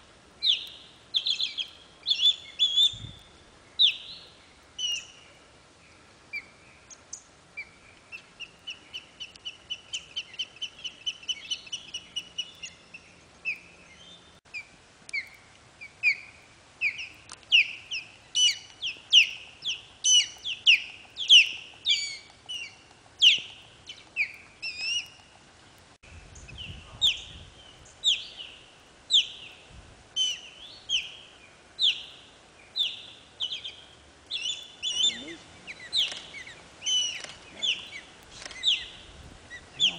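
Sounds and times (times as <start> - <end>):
ospreys chirping: 8.1 - 25.4, 31.8 - 39.9.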